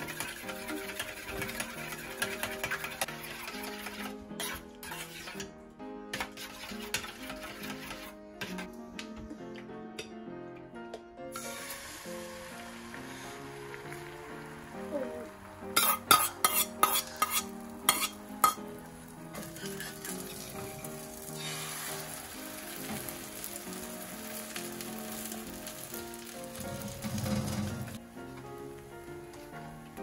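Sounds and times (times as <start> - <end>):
egg sizzling in a pan: 0.0 - 5.4, 11.3 - 28.0
background music: 0.0 - 30.0
metal spoon tapping: 15.8 - 18.6.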